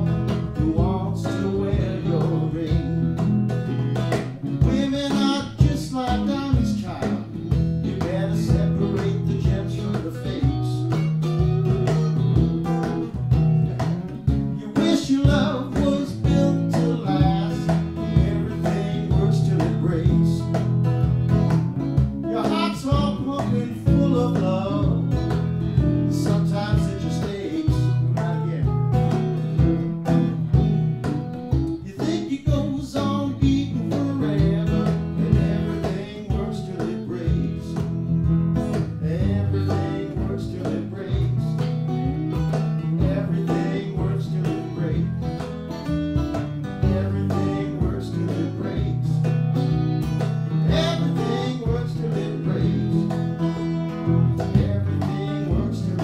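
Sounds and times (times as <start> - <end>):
man singing: 0.0 - 3.2, 4.5 - 12.5, 14.5 - 20.7, 22.2 - 25.3, 25.9 - 28.8, 31.8 - 38.0, 38.7 - 41.7, 42.9 - 45.5, 46.8 - 49.4, 50.5 - 53.5, 54.1 - 56.0
acoustic guitar playing: 0.0 - 56.0
cajon beat: 0.0 - 56.0.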